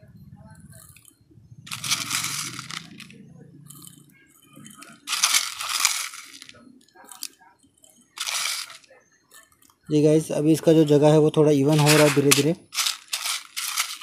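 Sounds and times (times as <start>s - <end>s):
brick chips crunching and rattling: 1.7s - 3.9s, 4.6s - 7.3s, 8.2s - 8.9s, 11.7s - 14.0s.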